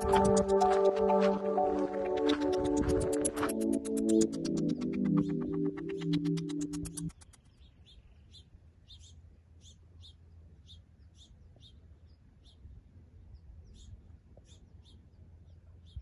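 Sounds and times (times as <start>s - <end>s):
small bird chirping: 4.1s - 16.0s.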